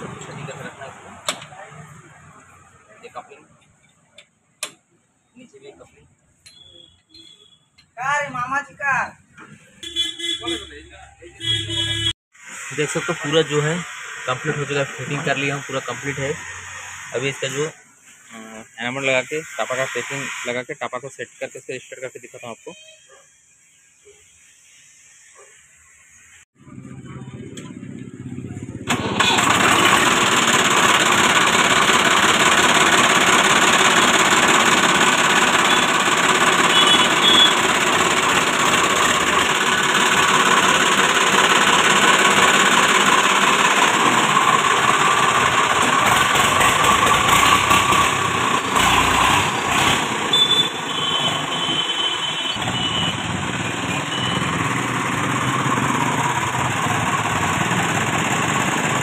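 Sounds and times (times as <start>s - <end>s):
tractor diesel engine running: 0.0s - 3.9s, 12.6s - 17.8s, 26.7s - 59.0s.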